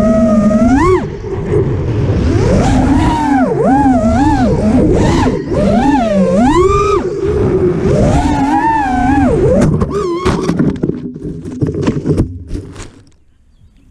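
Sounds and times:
wind rushing: 0.0s - 10.2s
drone motors whining: 0.0s - 10.9s.

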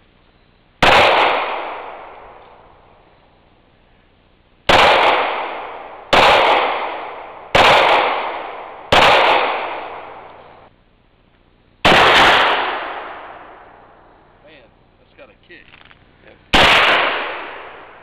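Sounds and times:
handgun shots with echo: 0.8s - 2.6s, 4.7s - 10.6s, 16.5s - 17.8s
rifle shot: 0.8s - 3.0s, 4.7s - 10.7s, 11.8s - 14.3s, 15.6s - 18.0s.

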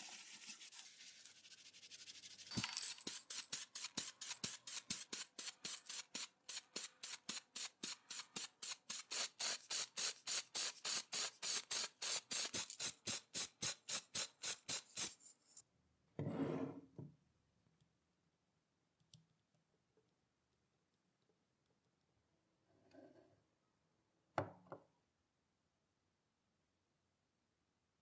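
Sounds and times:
spray can short hisses: 2.5s - 15.2s.

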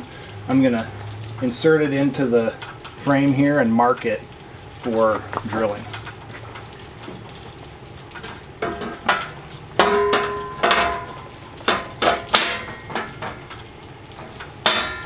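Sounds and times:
sheet metal clanking and knocking: 8.2s - 13.4s, 14.2s - 15.0s.

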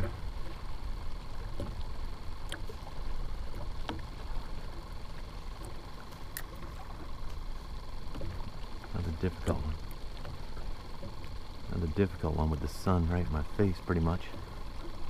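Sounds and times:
faint clicks: 0.0s - 11.6s
small waves lapping at kayak hull: 0.0s - 15.0s.

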